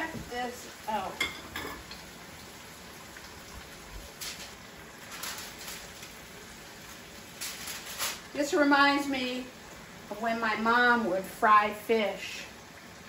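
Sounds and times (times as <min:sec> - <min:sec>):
fish sizzling in a skillet: 0:00.0 - 0:13.0.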